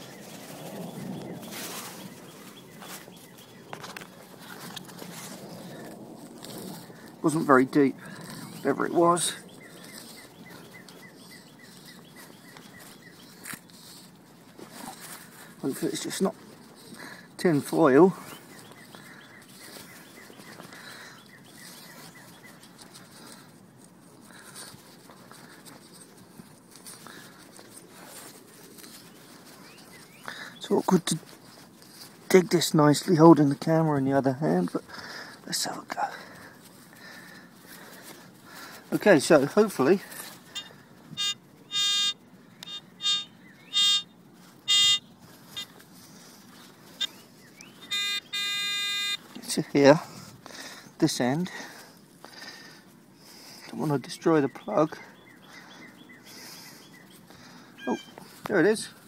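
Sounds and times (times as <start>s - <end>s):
light rustling: 0.0s - 43.6s, 44.2s - 50.9s
bird chirping: 8.1s - 14.0s, 18.2s - 22.8s, 40.5s - 45.7s, 46.6s - 49.3s, 54.2s - 58.3s
metal detector buzzing beeps: 40.6s - 45.7s, 47.8s - 49.2s.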